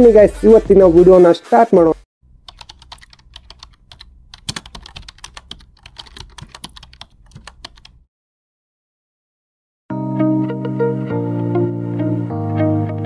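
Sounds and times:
rapid keyboard typing: 0:02.3 - 0:08.0.

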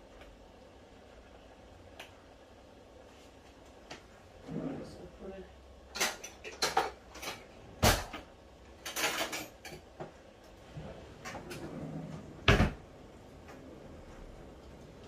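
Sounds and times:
kitchen clatter: 0:05.9 - 0:10.2.

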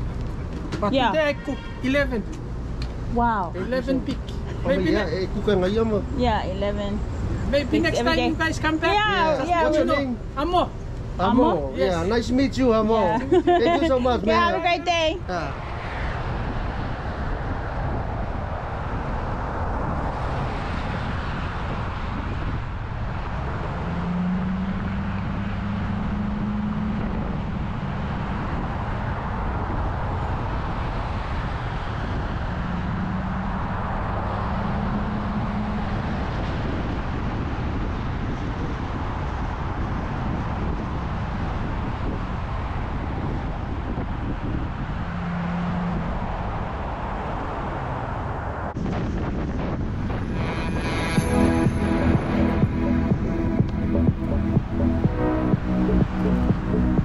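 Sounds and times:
tyre and wind rumble: 0:00.0 - 0:57.0
low hum: 0:48.7 - 0:57.0.

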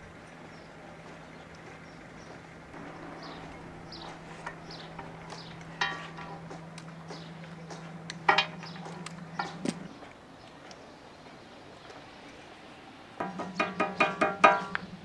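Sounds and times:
low hum: 0:00.0 - 0:11.1
metal clinking on metal: 0:04.4 - 0:06.6.

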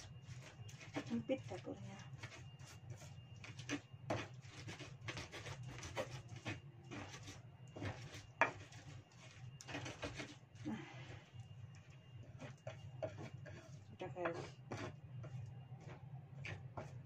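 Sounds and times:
pestle grinding in mortar: 0:00.0 - 0:11.3, 0:12.2 - 0:17.0.

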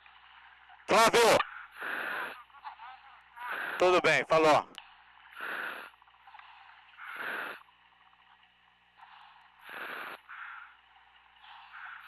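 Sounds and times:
diver breathing through valve: 0:01.5 - 0:02.4, 0:04.8 - 0:07.7, 0:08.9 - 0:12.0.

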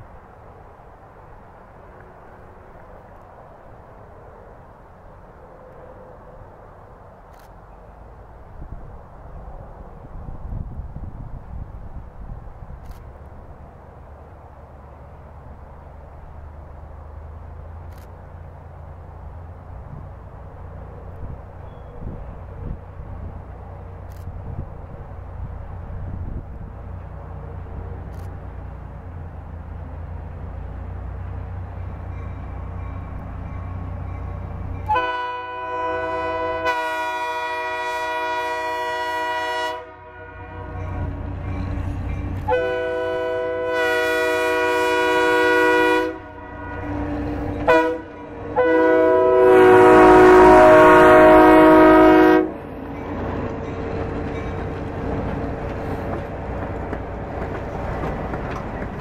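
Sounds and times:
locomotive engine rumbling: 0:00.0 - 0:59.0
train coaches rolling on rails: 0:00.0 - 0:59.0
locomotive air horn blasts: 0:34.8 - 0:41.0, 0:42.4 - 0:52.6.

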